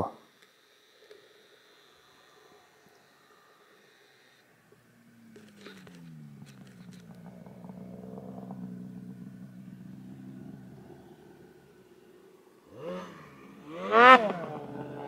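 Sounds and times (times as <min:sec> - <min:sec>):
snowmobile engine idling: 0:04.5 - 0:15.0.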